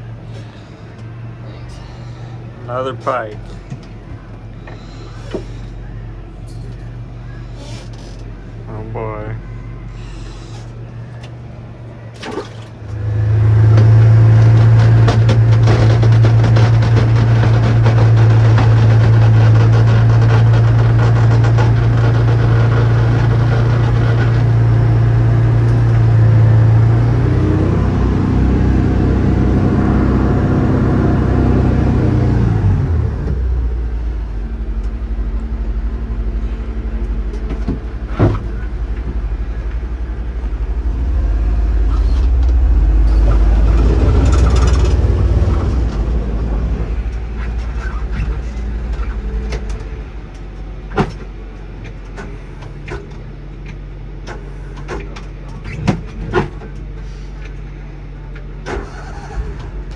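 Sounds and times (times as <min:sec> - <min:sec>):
engine low drone: 0:00.0 - 0:59.9
whine falling in pitch: 0:33.3 - 0:47.3.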